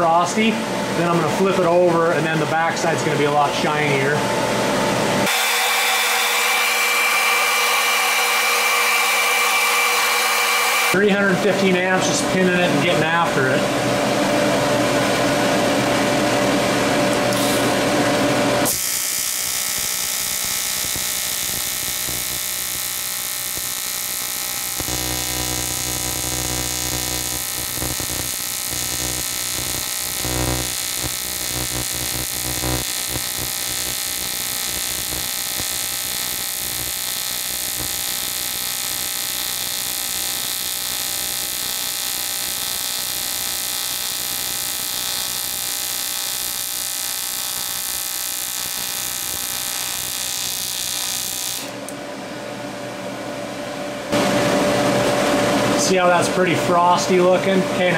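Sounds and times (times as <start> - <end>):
welding machine fan humming: 0.0 - 52.1
welding arc buzzing: 5.2 - 11.8, 17.3 - 52.0
deep heavy hum: 24.2 - 35.8.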